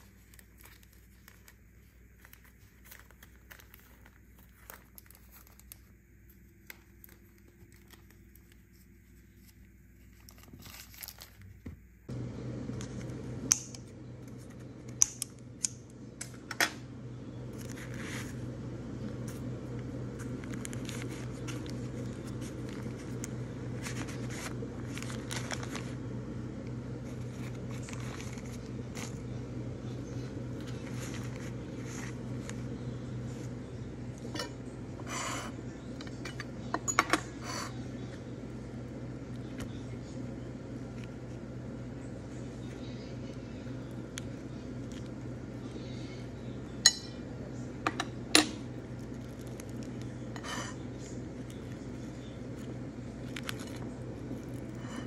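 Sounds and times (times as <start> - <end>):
parchment paper rustling: 0.0 - 11.9, 17.4 - 34.4, 48.8 - 55.0
steady low hum: 0.0 - 55.0.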